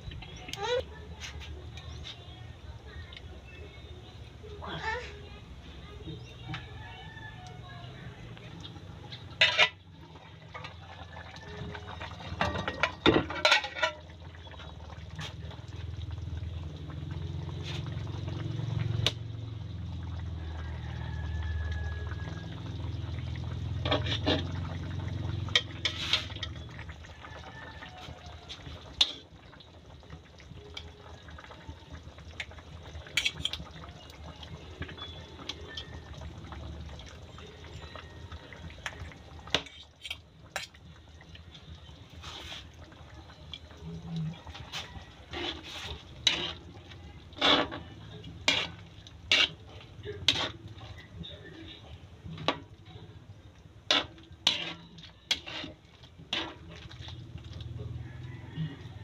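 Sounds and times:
low rumble of fire: 0.0s - 59.0s
stew simmering and bubbling: 0.0s - 59.0s.

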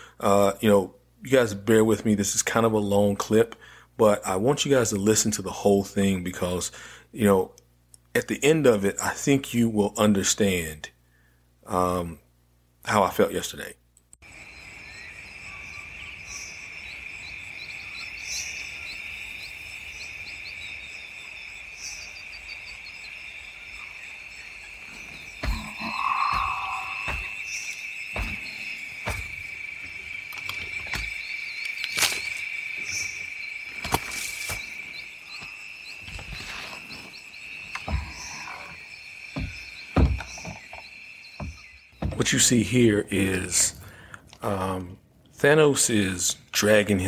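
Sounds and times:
insects chirring: 12.9s - 47.0s
knocks and thumps: 25.3s - 27.5s, 28.1s - 31.2s, 37.8s - 38.3s, 39.3s - 42.4s.

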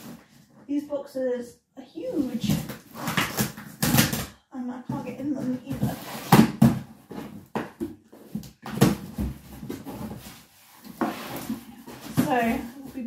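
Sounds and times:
cardboard rustling: 4.9s - 13.0s
cardboard box scraping and ripping: 8.8s - 12.9s.

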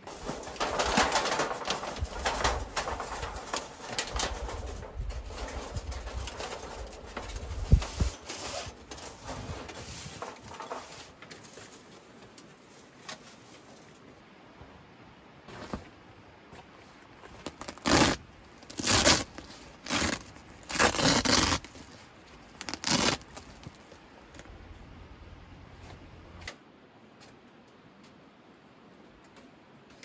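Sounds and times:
tent fabric rustling and scraping: 0.0s - 14.1s, 15.4s - 24.5s.

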